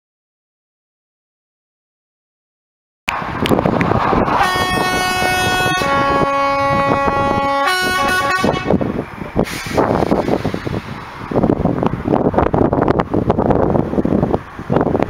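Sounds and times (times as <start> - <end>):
wind buffeting microphone: 3.1 - 15.0
horn blowing a chord: 4.2 - 8.8.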